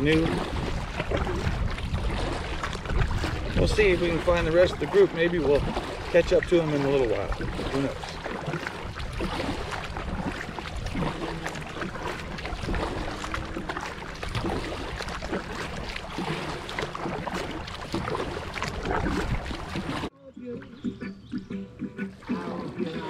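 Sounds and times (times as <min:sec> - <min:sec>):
wind on microphone: 0:00.0 - 0:16.3, 0:17.4 - 0:20.1
paddle splashing in water: 0:00.0 - 0:23.0
water trickling: 0:00.0 - 0:23.0.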